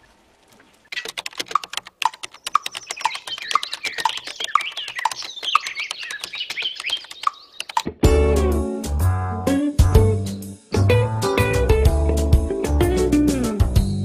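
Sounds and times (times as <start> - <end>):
keyboard typing: 0.9 - 7.9
clock ticking: 1.0 - 7.9
high wavering chirps: 2.3 - 7.9.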